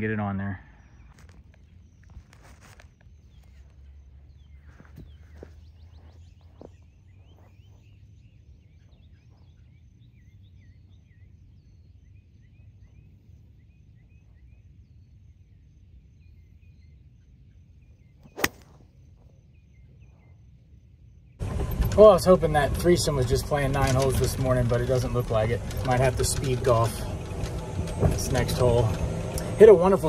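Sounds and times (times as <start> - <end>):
golf club striking ball: 18.2 - 18.8.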